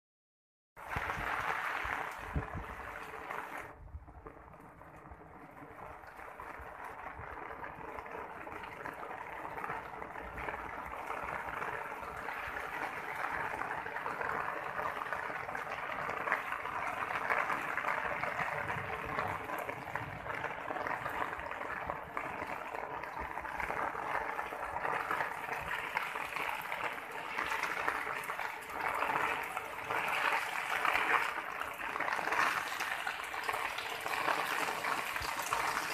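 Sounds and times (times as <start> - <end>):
water splashing onto metal: 14.6 - 35.9.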